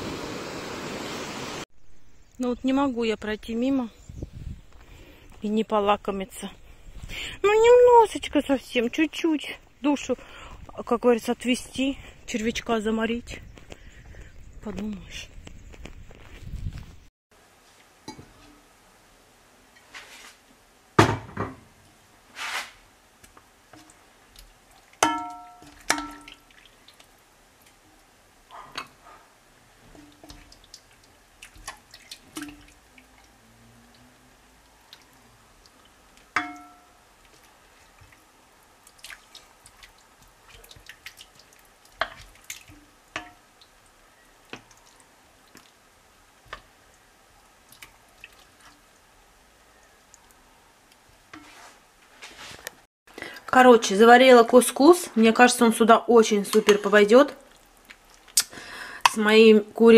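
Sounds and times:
spoons clinking against ceramic bowl: 25.0 - 26.4, 36.4 - 37.0.

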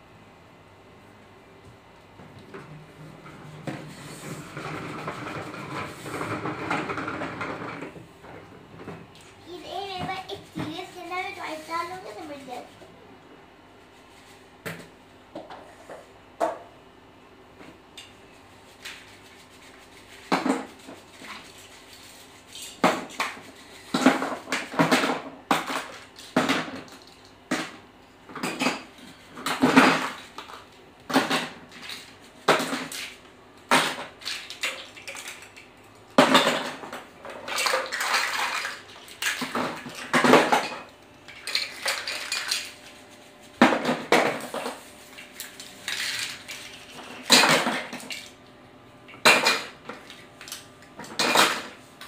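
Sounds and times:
plastic toys clattering into tub: 36.2 - 42.8.

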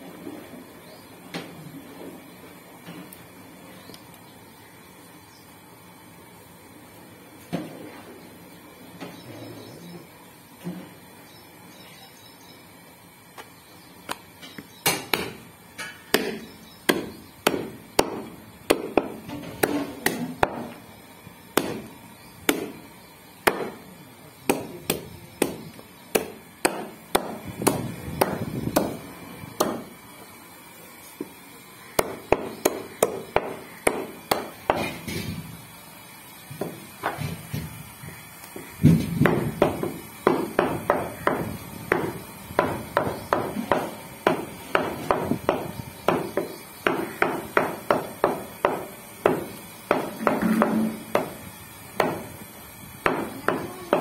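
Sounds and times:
cleaver chopping on wooden block: 16.1 - 20.7, 21.6 - 21.9, 22.5 - 22.8, 23.4 - 23.8, 24.5 - 29.0, 29.6 - 29.9, 32.0 - 35.1, 38.9 - 51.4, 52.0 - 52.3, 53.0 - 54.0.

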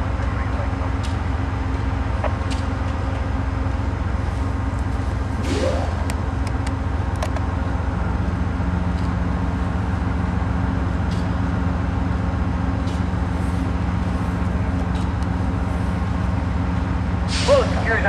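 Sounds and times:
diesel locomotive idling: 0.0 - 18.0.

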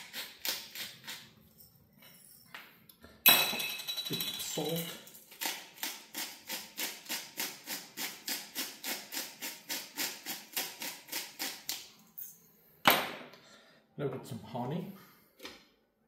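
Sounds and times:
salt grinder crunching: 0.0 - 1.4, 5.3 - 11.8.

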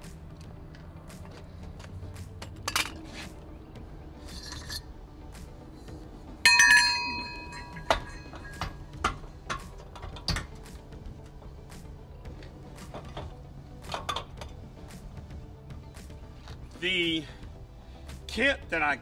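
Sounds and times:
metal tools clinking and knocking: 2.4 - 3.2, 4.2 - 4.9, 6.5 - 10.6, 12.8 - 14.6
loud ringing metal clang: 6.5 - 8.8.

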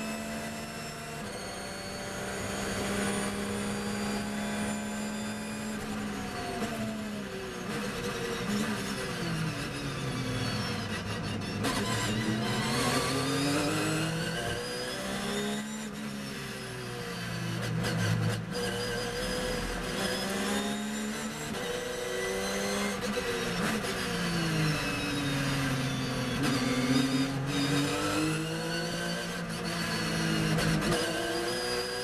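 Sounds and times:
race car engine accelerating: 0.0 - 16.0.

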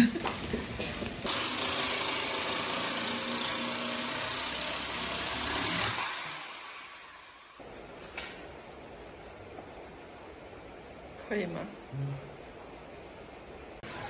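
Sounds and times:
jigsaw cutting wood: 1.3 - 7.4.

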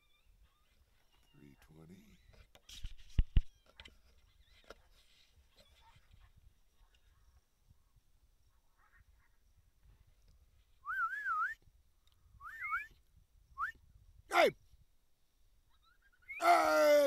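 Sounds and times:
warbling whistles: 10.8 - 11.6, 12.4 - 13.0.

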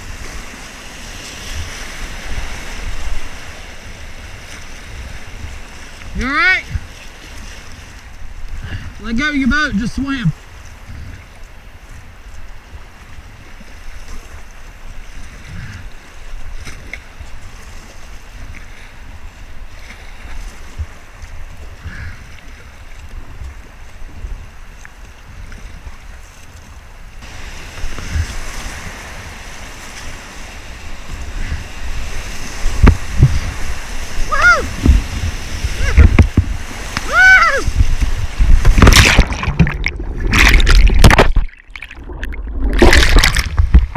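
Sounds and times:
rushing river water: 0.0 - 43.9
wind buffeting microphone: 0.0 - 43.9
water hitting microphone: 27.2 - 43.9.

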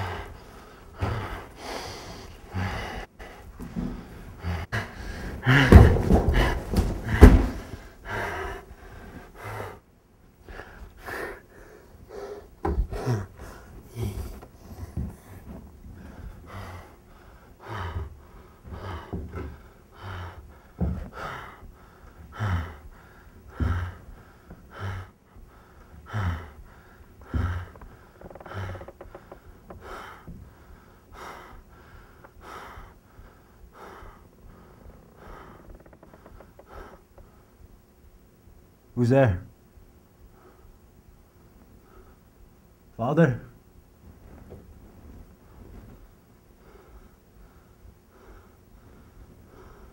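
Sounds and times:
man breathing heavily with gasps: 0.0 - 37.6
knocks and shuffles: 5.3 - 8.0.

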